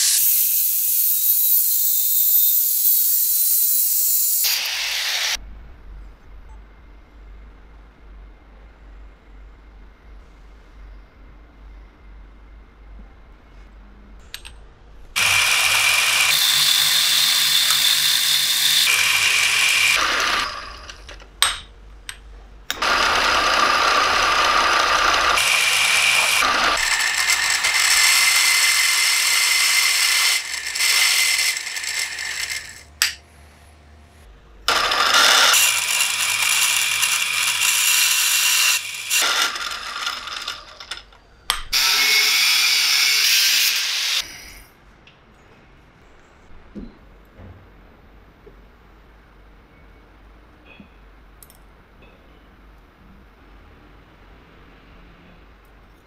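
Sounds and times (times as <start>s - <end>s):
loud hiss: 0.0s - 0.3s
power tool whining on metal: 15.2s - 21.2s, 22.7s - 32.9s, 34.7s - 41.0s, 41.7s - 44.4s.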